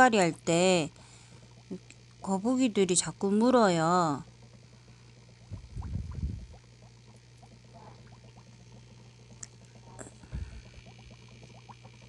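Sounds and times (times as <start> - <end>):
steady low hum: 0.0 - 12.0
water plinks and trickles: 4.2 - 12.0
low rumble: 5.4 - 6.6.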